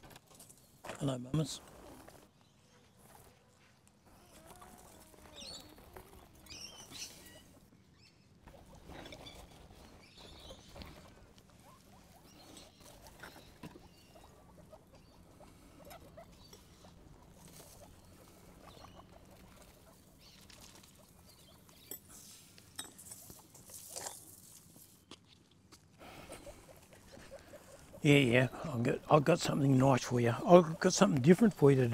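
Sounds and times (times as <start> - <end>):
guinea pigs scurrying: 0.0 - 7.7, 8.4 - 31.9
guinea pigs chattering: 4.1 - 7.7, 8.4 - 21.9, 26.0 - 31.9.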